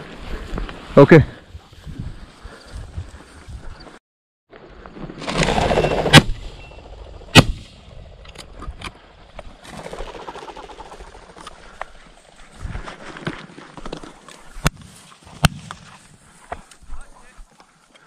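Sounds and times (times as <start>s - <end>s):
shotgun shots: 7.3s - 7.8s.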